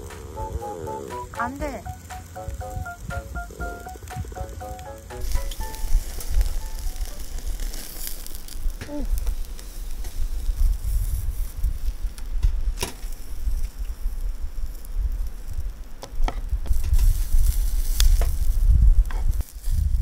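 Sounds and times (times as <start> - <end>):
meat sizzling on grill: 1.8 - 12.4, 16.6 - 20.0.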